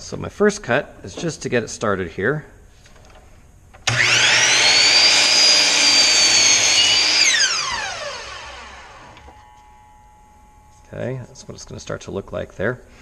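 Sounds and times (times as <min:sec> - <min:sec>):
miter saw whining: 0:03.9 - 0:09.4.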